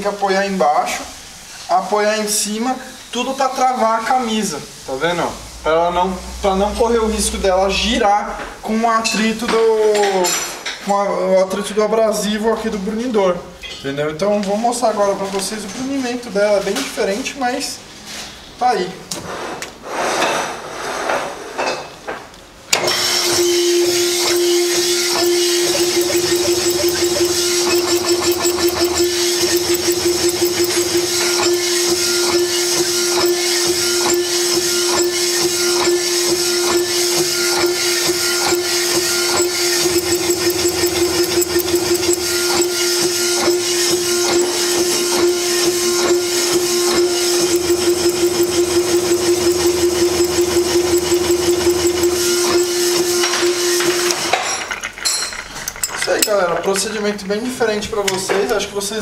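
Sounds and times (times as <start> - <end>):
honing machine humming: 23.0 - 54.1.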